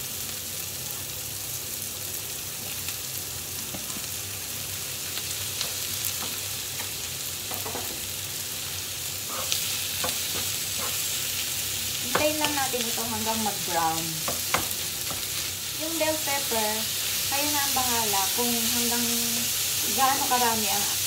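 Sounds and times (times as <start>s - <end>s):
meat sizzling in frying pan: 0.0s - 21.0s
spatula scraping pan: 9.2s - 11.2s.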